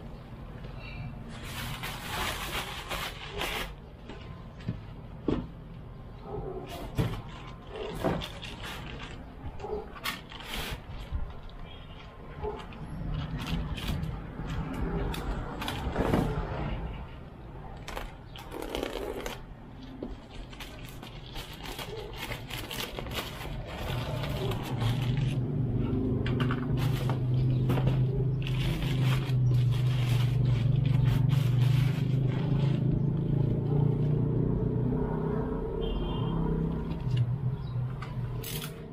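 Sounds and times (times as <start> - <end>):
plastic mailer bag rustling: 1.3 - 4.0, 7.1 - 9.4, 20.2 - 25.4, 26.7 - 32.9.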